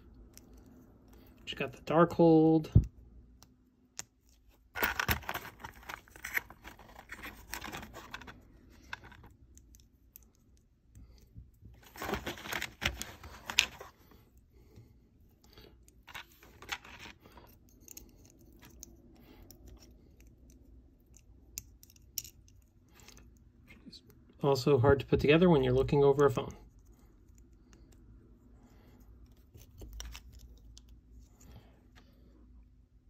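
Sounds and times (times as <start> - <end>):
paper packaging rustling and tearing: 4.8 - 9.3, 11.8 - 13.9.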